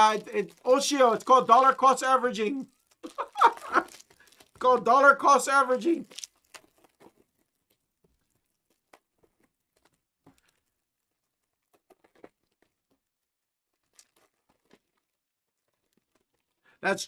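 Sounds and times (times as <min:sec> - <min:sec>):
foil wrappers crinkling: 0:00.0 - 0:16.8.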